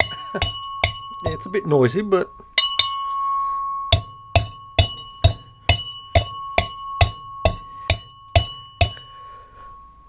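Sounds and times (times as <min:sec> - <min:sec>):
metal pestle pounding in mortar: 0:00.0 - 0:01.5, 0:03.9 - 0:09.1
mortar ringing high tone: 0:00.0 - 0:10.0.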